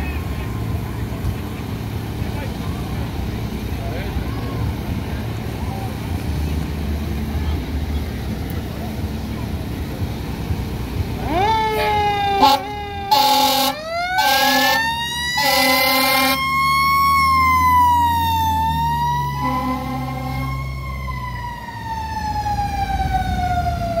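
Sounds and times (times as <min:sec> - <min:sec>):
diesel engine rumbling: 0:00.0 - 0:24.0
siren winding up and down: 0:11.2 - 0:24.0
fire engine air horn blasts: 0:11.3 - 0:16.6, 0:19.3 - 0:20.7.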